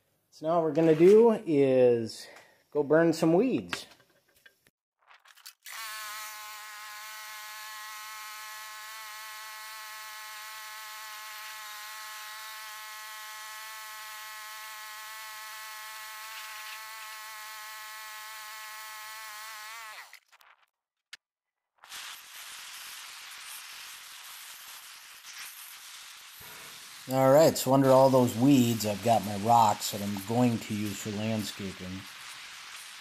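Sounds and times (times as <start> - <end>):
weed torch hissing: 21.8 - 33.0.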